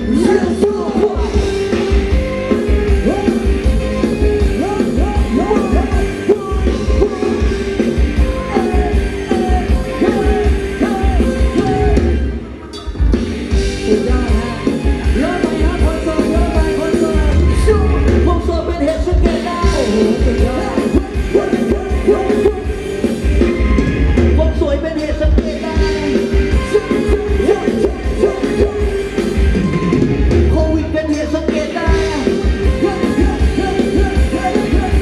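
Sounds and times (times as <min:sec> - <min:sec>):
person singing: 0:00.0 - 0:12.2, 0:13.7 - 0:22.9, 0:24.1 - 0:29.2, 0:30.4 - 0:35.0
heavy steady bass beat: 0:00.0 - 0:12.3, 0:13.1 - 0:35.0
live band dance music: 0:00.0 - 0:35.0.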